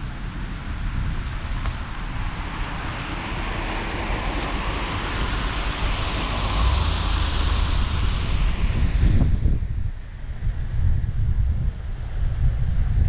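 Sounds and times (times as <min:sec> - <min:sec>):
low rumble: 0:00.0 - 0:13.0
tyres hissing on wet pavement: 0:00.2 - 0:09.2.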